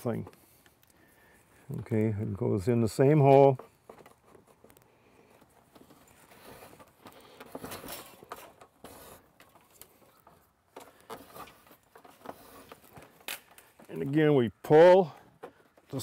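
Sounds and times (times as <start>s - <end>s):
root lacing rustling through bark: 0.1s - 16.0s.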